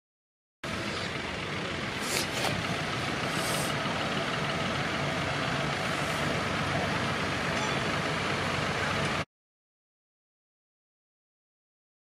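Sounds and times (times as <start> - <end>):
tractor engine running under load: 0.6 - 9.3
short hisses: 2.0 - 2.6, 3.2 - 3.8.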